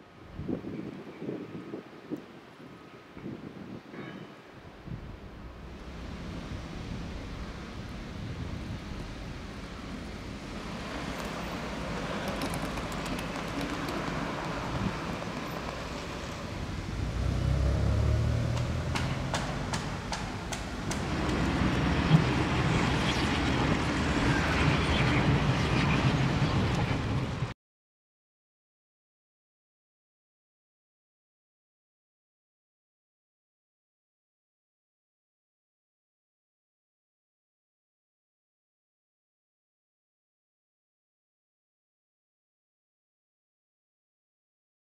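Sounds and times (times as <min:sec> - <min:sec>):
deep vehicle rumble: 0:04.9 - 0:24.3
cars passing: 0:05.1 - 0:27.5.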